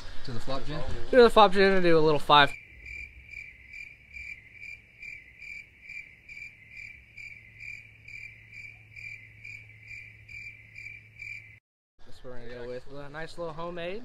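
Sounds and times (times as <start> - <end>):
cricket chirping: 2.5 - 11.6.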